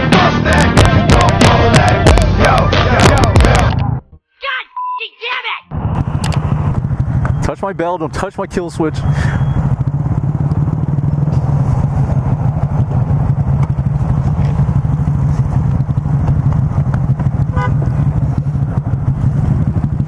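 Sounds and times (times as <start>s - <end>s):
motorcycle engine idling: 6.0s - 20.0s
other motorcycles idling: 6.0s - 20.0s.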